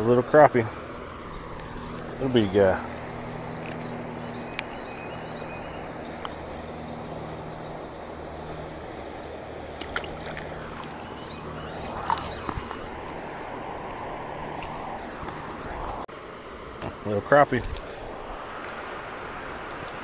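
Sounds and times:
low steady hum: 0:00.0 - 0:16.1
river water rushing: 0:00.0 - 0:20.0
fishing rod cast swish: 0:11.8 - 0:13.6.

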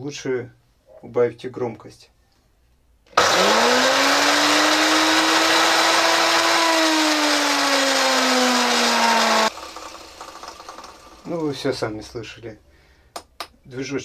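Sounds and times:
drill motor whining: 0:03.2 - 0:11.4.

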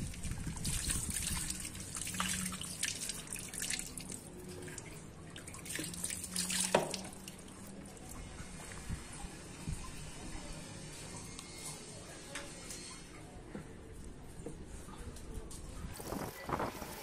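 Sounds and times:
water splashing and trickling: 0:00.0 - 0:11.1
drips onto concrete: 0:00.1 - 0:08.8.

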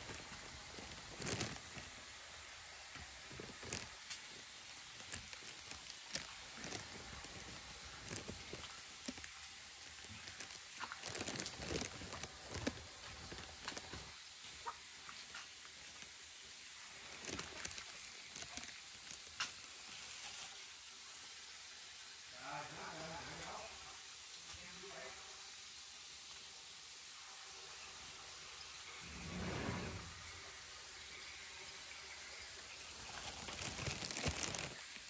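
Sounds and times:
low hiss: 0:00.0 - 0:35.0
faint footsteps: 0:05.0 - 0:14.2.

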